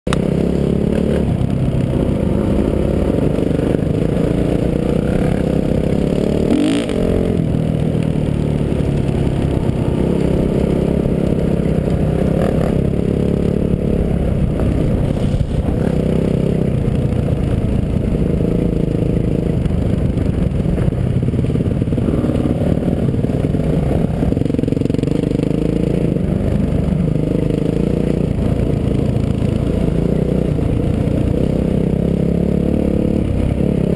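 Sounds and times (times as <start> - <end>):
dirt bike engine revving: 0.1 - 19.6
rumble and rattle on gravel trail: 0.1 - 33.9.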